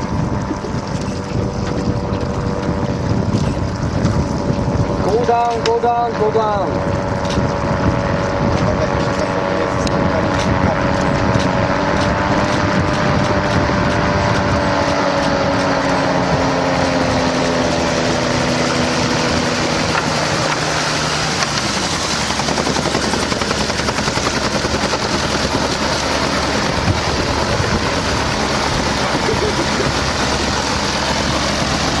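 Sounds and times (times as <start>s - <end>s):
gyroplane engine and propeller: 0.0s - 32.0s.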